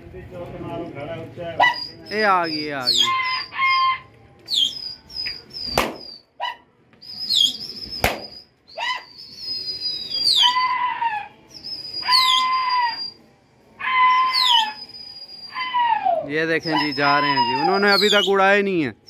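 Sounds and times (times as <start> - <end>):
shrill whistles: 1.6 - 18.7
sharp cracks: 5.6 - 6.2, 8.0 - 8.5.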